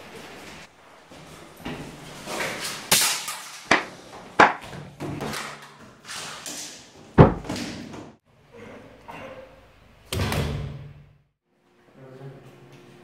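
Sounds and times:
body blows thumping: 7.2 - 7.6.

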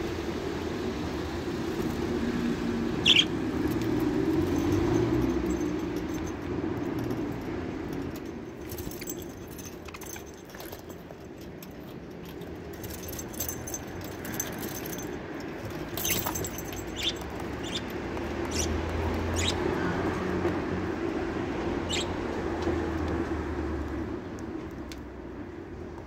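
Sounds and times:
birds pecking seed: 1.6 - 20.6.

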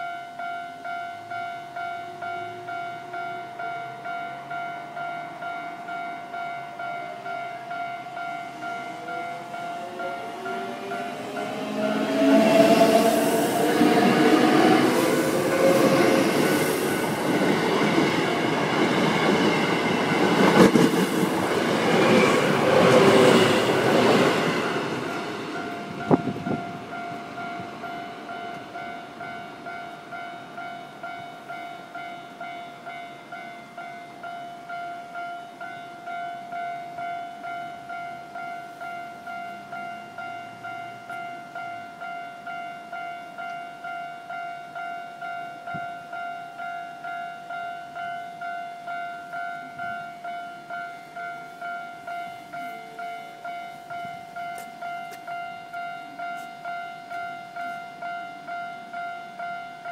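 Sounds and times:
level-crossing warning bell ringing: 0.0 - 59.9
train passing at speed: 0.8 - 59.9.

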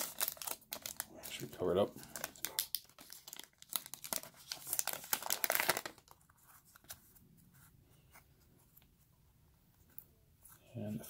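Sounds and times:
foil wrapper tearing and crinkling: 0.0 - 6.2.

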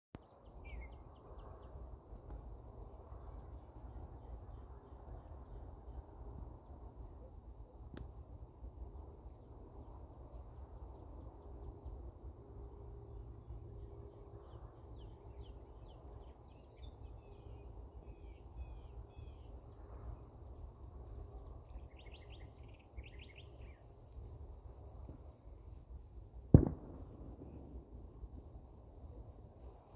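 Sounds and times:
songbirds chirping: 0.2 - 29.9
low background rumble: 26.5 - 29.9.

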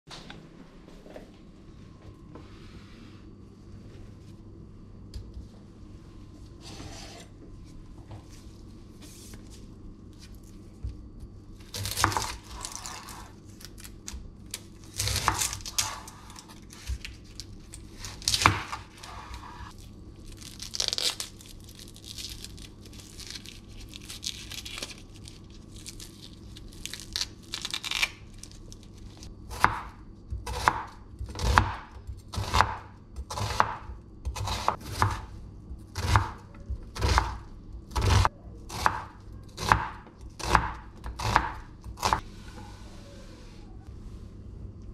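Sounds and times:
onion skin crackling and tearing: 11.6 - 18.5, 19.7 - 29.3.

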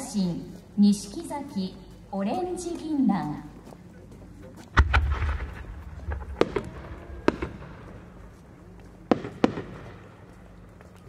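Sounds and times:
firework pops: 4.8 - 7.6
low rumble: 4.8 - 9.2.

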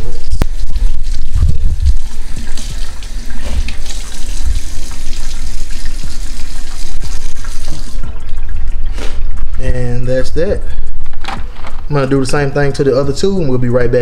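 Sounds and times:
water splashing: 0.0 - 9.6.

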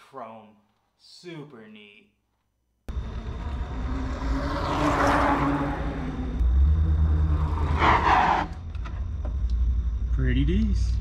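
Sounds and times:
vehicle passing by: 2.9 - 8.6
steady low rumble: 8.6 - 11.0.

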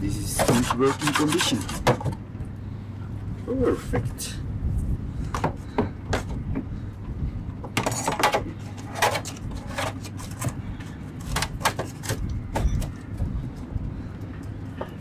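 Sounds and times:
steady low hum: 0.0 - 15.0
pump parts knocking and clattering: 0.3 - 2.2, 5.3 - 6.7, 7.5 - 13.0.

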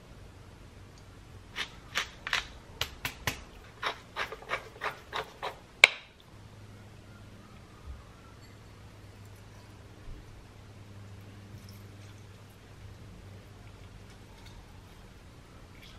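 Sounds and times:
pepper mill grinding crunches: 3.6 - 5.6.

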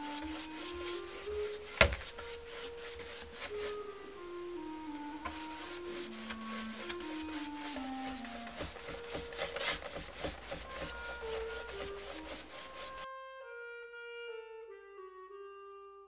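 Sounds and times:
hand rubbing wooden block: 0.0 - 13.1
soft melody of held notes: 0.0 - 16.0.

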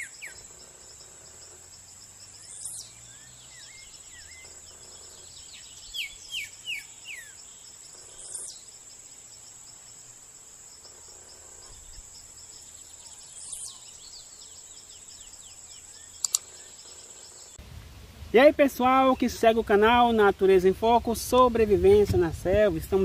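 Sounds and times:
bird calls: 0.0 - 8.8, 10.8 - 17.6
insect trilling: 0.0 - 17.6.

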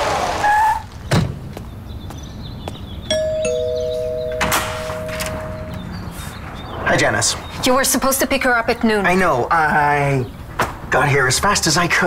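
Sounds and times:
two-tone doorbell chime: 3.1 - 6.0
car noise: 3.1 - 9.3.

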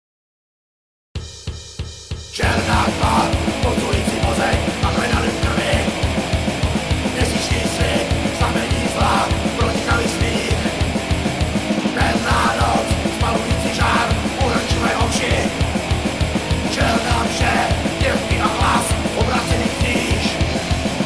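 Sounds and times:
distorted guitars: 2.3 - 21.0
harsh shouted vocals: 2.4 - 21.0.

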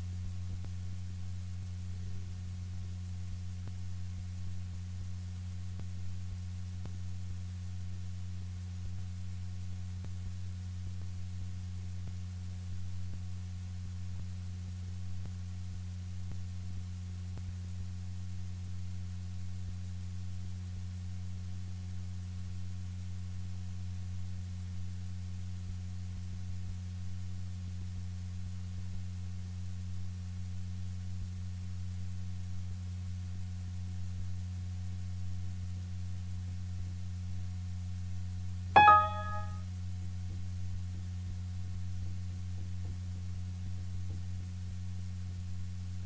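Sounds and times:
low electrical hum: 0.0 - 24.6.

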